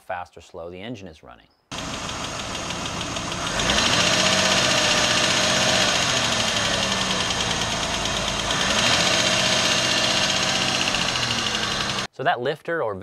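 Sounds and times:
metallic valve ticking: 1.7 - 12.0
car engine running: 1.7 - 12.1.

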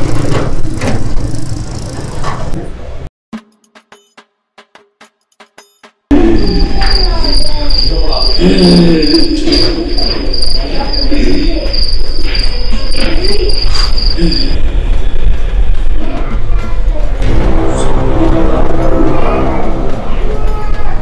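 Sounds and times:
cricket chirping: 6.1 - 14.6
low rumble: 17.0 - 20.7
wavering low tones: 17.2 - 20.6.

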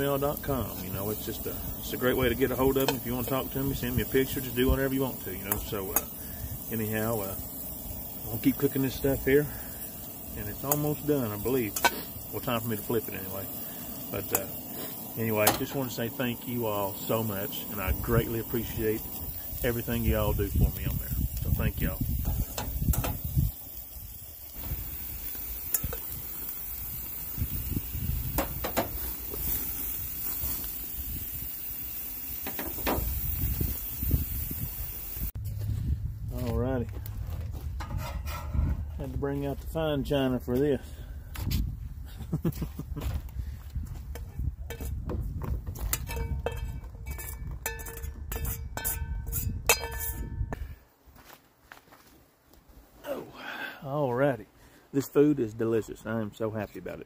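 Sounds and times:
food sizzling: 0.0 - 35.4, 44.1 - 50.6
low rumble: 34.4 - 39.2
knife and fork scraping a plate: 37.9 - 38.6, 46.1 - 50.3.

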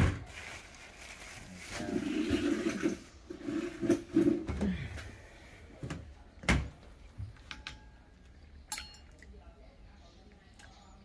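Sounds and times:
scraping on hard surface: 1.2 - 4.6.

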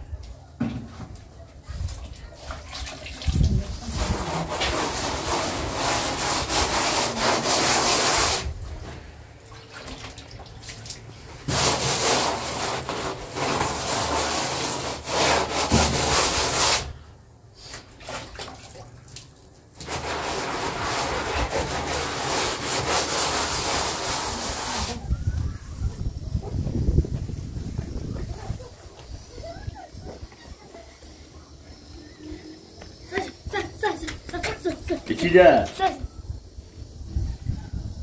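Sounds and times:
trowel scraping plaster on wall: 3.7 - 8.6, 11.4 - 17.0, 19.8 - 25.0.

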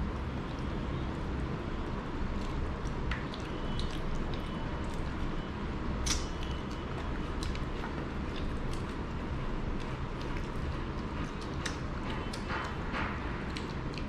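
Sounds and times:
steady low hum: 0.0 - 14.0
chewing: 2.2 - 14.0
wet clicks of eating by hand: 2.3 - 5.4, 6.0 - 9.1, 9.7 - 14.0.

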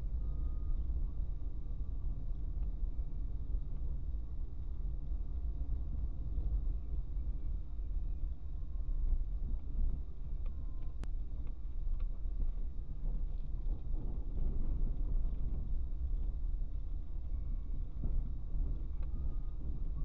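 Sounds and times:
car driving on unpaved road: 0.0 - 20.0.

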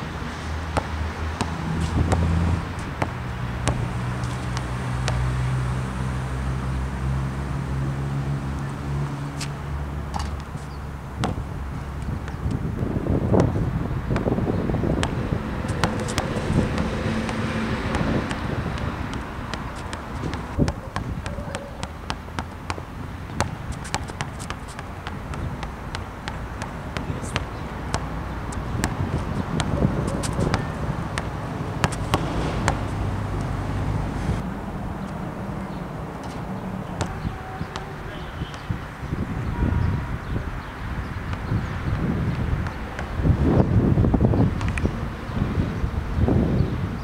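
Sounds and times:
basketball dribbled on asphalt: 0.5 - 7.3, 9.4 - 33.7, 36.2 - 45.4
wind buffeting microphone: 9.7 - 47.0.

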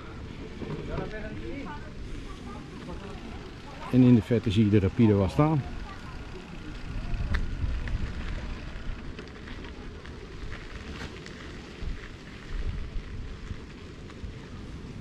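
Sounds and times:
tyres crunching on dirt track: 0.0 - 15.0
wind buffeting microphone: 5.6 - 10.9, 11.5 - 15.0.

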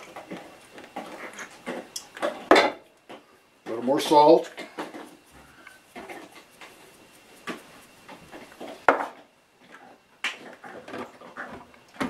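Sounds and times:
salt being shaken: 4.8 - 8.9.

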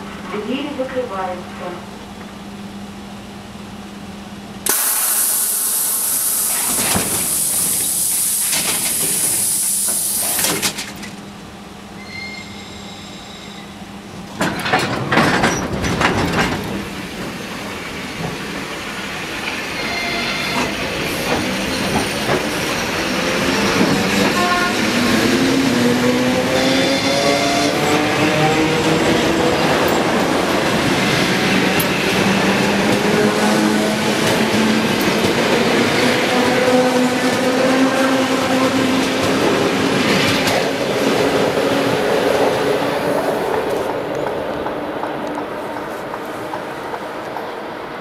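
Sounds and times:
train clanks and clicks: 4.5 - 11.4, 14.0 - 48.0
compressed air hiss: 4.7 - 10.4.

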